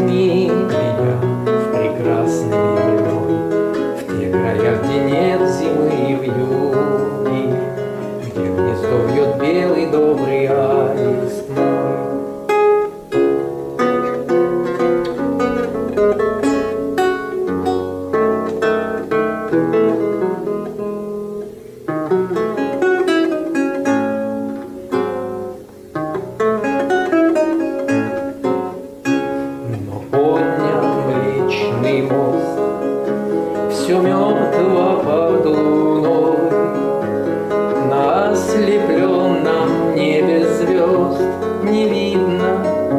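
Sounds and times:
man singing: 0.0 - 12.5, 29.6 - 42.9
lute playing: 0.0 - 42.9.

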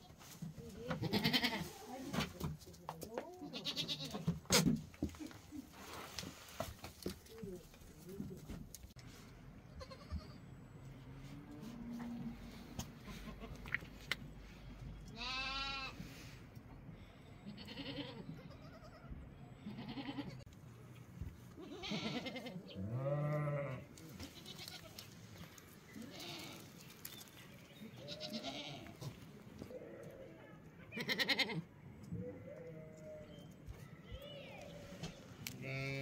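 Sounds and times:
young goats bleating: 1.0 - 1.8, 3.4 - 4.3, 9.7 - 10.4, 13.0 - 13.7, 15.1 - 16.0, 17.4 - 20.5, 21.5 - 27.2, 27.8 - 31.7, 35.5 - 36.0.

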